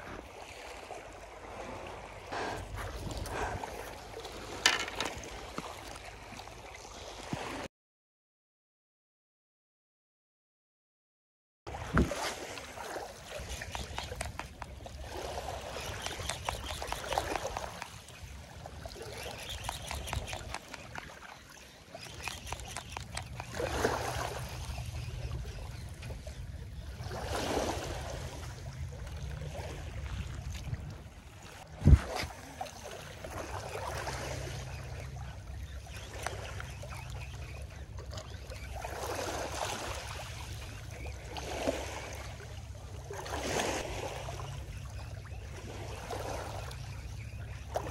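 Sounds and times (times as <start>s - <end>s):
small waves washing onto beach: 11.7s - 47.9s.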